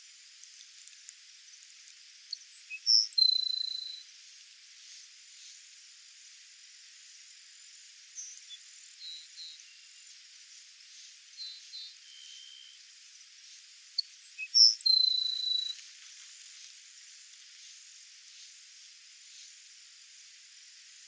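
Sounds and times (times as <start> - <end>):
insect hiss: 0.0 - 21.0
sparrow song with trill: 2.3 - 4.0, 14.0 - 15.8
faint high bird chirps: 2.3 - 4.1, 8.1 - 10.2, 11.3 - 12.8, 14.0 - 15.8.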